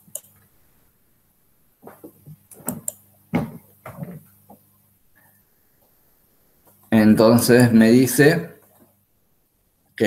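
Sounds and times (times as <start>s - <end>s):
soft knocks and handling noises: 1.8s - 4.7s.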